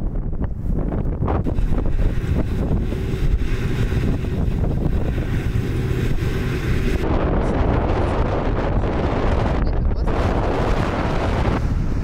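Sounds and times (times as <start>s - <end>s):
strong wind buffeting microphone: 0.0s - 12.0s
snowblower truck running: 1.4s - 9.0s.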